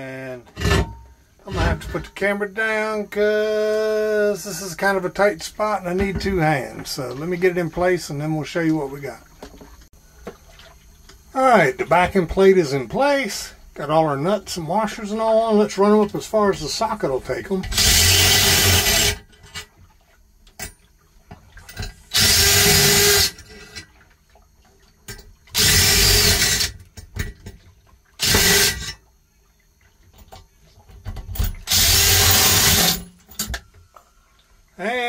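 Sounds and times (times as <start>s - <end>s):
cordless driver spinning nuts: 17.7s - 19.2s, 22.1s - 23.4s, 25.6s - 26.7s, 28.2s - 28.9s, 31.7s - 33.0s.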